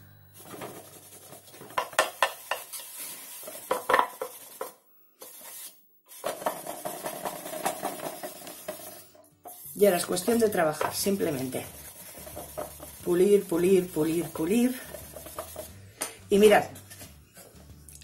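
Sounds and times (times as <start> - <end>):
brush scrubbing wood: 2.2 - 15.7.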